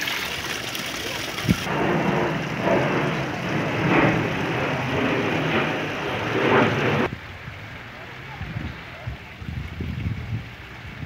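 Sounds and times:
jet airliner roaring overhead: 1.0s - 8.9s.

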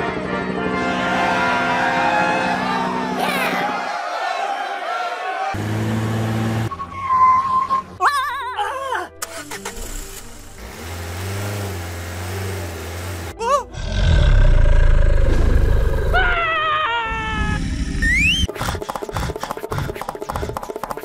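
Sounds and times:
falling whistle tones: 6.7s - 8.0s.

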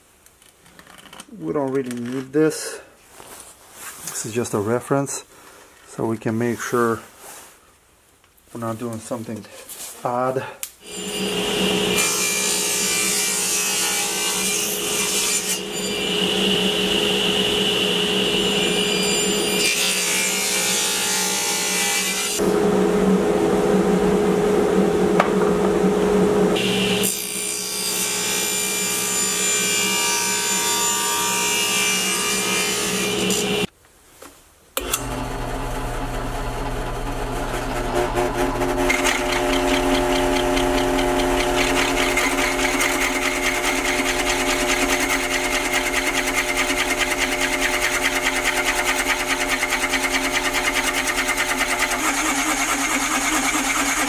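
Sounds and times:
table saw cutting plywood: 10.8s - 33.7s, 34.8s - 54.0s
drill press motor hum: 34.8s - 54.0s
circle cutter chattering: 37.9s - 54.0s.

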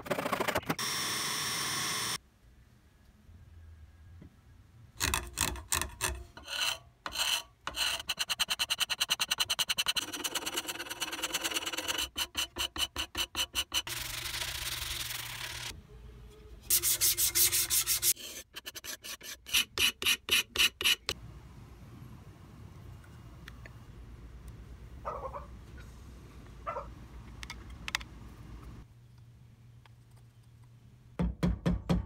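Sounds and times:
scraper blade scraping wood: 6.4s - 15.7s.

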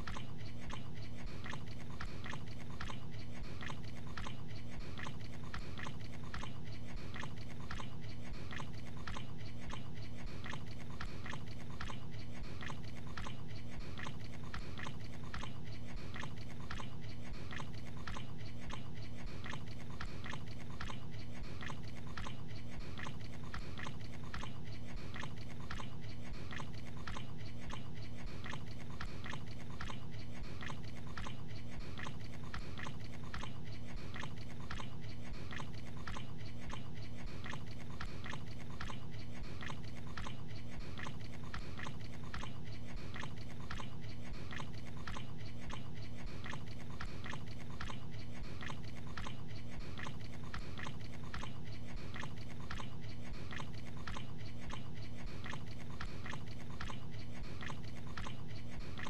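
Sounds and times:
faint low hum: 0.0s - 59.0s.

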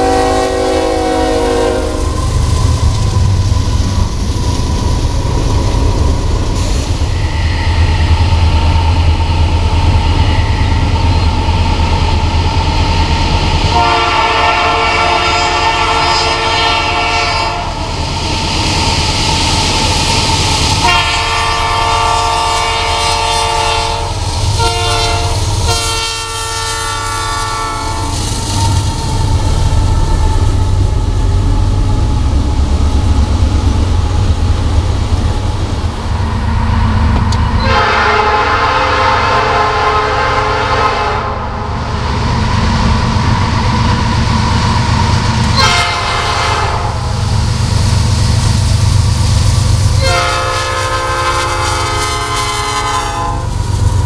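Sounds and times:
locomotive air horn blasts: 0.0s - 2.2s, 13.7s - 17.8s, 20.8s - 28.2s, 37.6s - 41.5s, 45.5s - 47.1s, 50.0s - 53.5s
freight train rumbling on rails: 0.0s - 54.0s.

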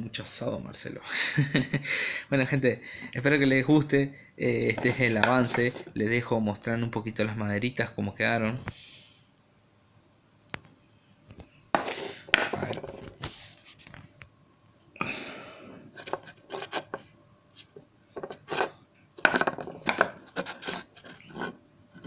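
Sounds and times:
wooden handles rubbing together: 4.6s - 6.0s, 11.4s - 13.9s, 15.9s - 22.0s.

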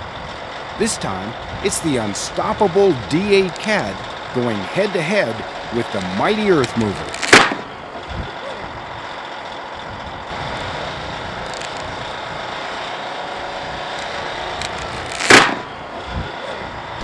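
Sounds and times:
bulldozer diesel engine running: 0.0s - 17.0s
strap snapping with loud crack: 7.1s - 7.7s, 14.0s - 15.7s.

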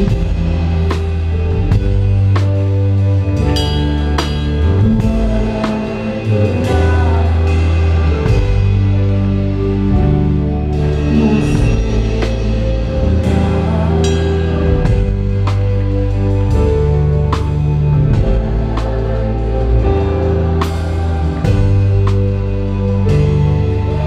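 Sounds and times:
live band music: 0.0s - 24.0s.

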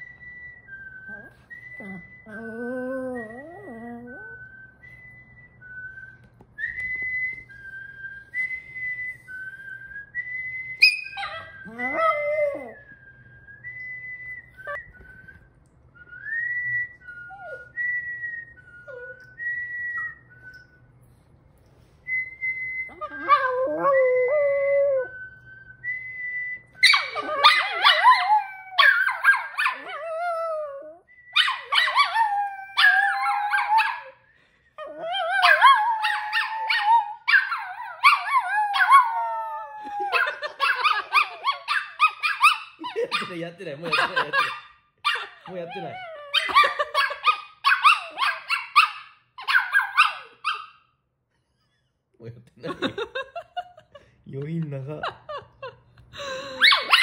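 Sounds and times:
man whistling a slow tune: 0.0s - 27.4s, 29.9s - 31.6s
small dogs howling: 26.8s - 34.2s, 34.8s - 43.4s.

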